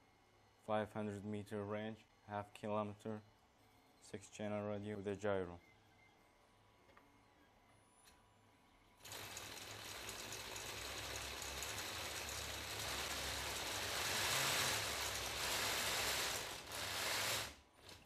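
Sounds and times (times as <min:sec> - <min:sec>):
toy tank tracks whirring: 0:09.0 - 0:18.0.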